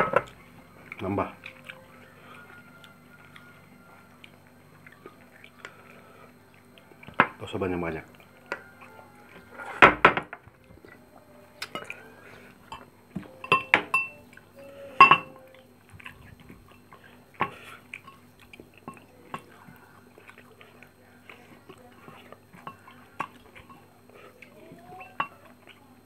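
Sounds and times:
metal spoon clinking on dishes: 0:12.7 - 0:14.2, 0:15.0 - 0:15.4.

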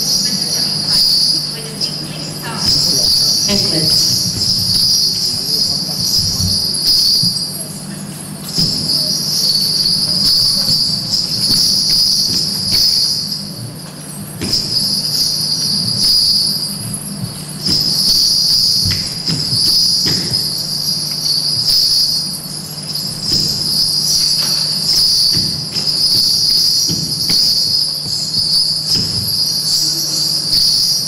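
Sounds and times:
small bells jingling: 0:00.0 - 0:07.8, 0:08.4 - 0:31.0.

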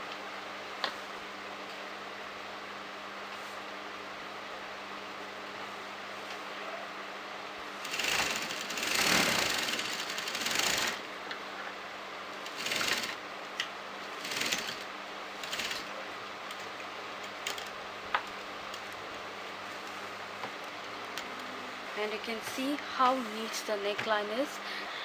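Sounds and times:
sewing machine stitching: 0:07.8 - 0:11.1, 0:12.4 - 0:13.2, 0:14.2 - 0:15.9.

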